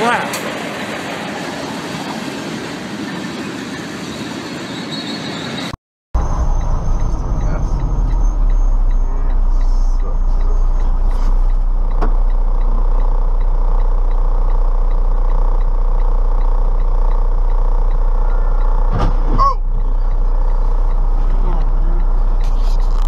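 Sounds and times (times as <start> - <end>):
traffic and engine noise: 0.0 - 23.0
brief falling squeal: 19.3 - 19.6.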